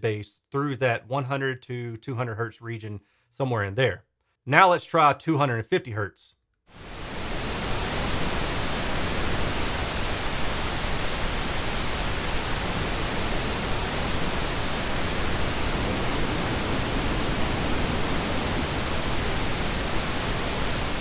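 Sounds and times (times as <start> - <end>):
pink noise test signal: 6.7 - 21.0.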